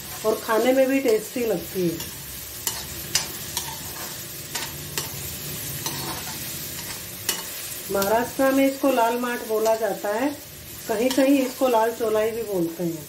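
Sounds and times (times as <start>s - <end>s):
vegetables sizzling in hot oil: 0.0s - 13.0s
spatula scraping metal pan: 2.0s - 9.9s.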